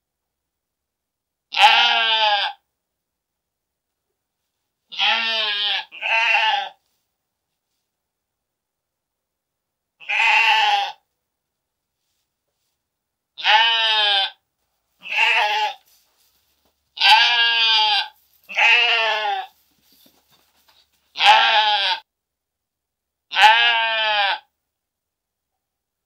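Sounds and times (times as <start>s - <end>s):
sheep bleating: 1.5s - 2.6s, 4.9s - 6.8s, 10.0s - 11.0s, 13.4s - 14.4s, 15.0s - 15.9s, 17.0s - 19.6s, 21.1s - 22.1s, 23.3s - 24.5s.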